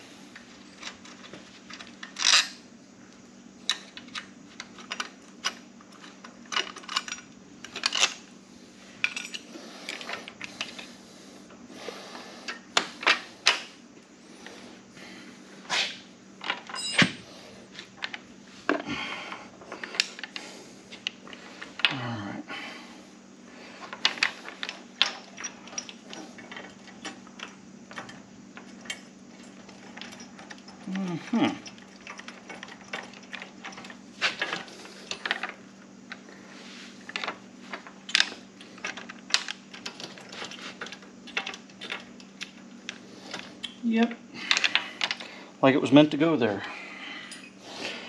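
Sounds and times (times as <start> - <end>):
faint steady hum: 0.0 - 48.0
metal tools clinking: 0.6 - 2.6, 3.7 - 8.2, 9.0 - 10.8, 16.4 - 17.3, 24.0 - 35.6, 47.2 - 47.6.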